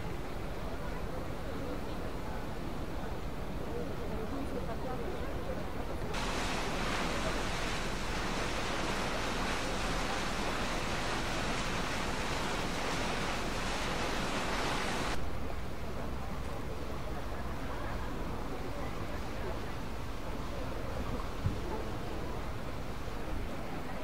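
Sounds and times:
water rushing: 6.1 - 15.2
low engine rumble: 6.2 - 15.2.

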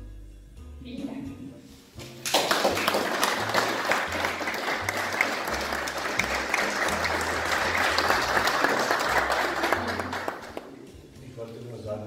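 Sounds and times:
audience clapping: 2.2 - 10.9.

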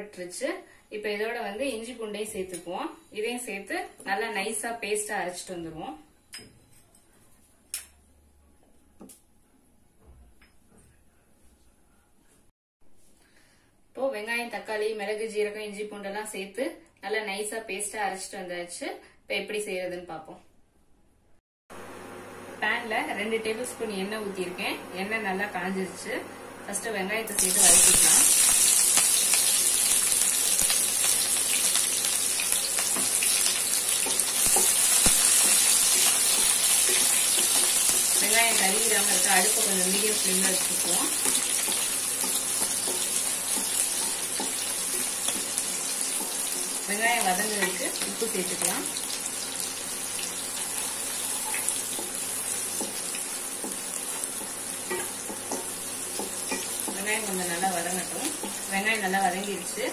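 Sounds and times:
shallots sizzling in hot oil: 27.3 - 59.9.

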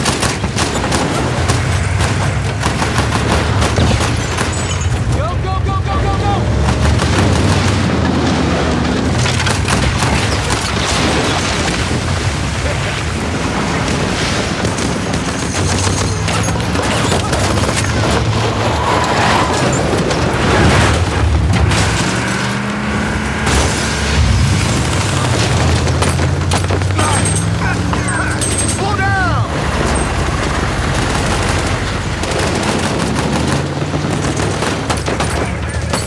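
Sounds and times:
gunfire bursts: 0.0 - 4.7, 6.5 - 11.7, 30.1 - 36.0
vehicle engine drone: 0.0 - 36.0
booms: 6.5 - 28.4.

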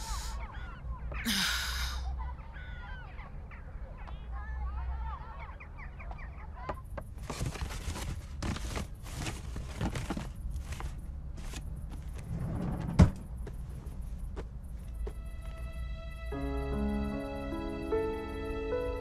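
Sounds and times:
low steady hum: 0.0 - 19.0
rustling and shuffling movement: 6.8 - 15.2.

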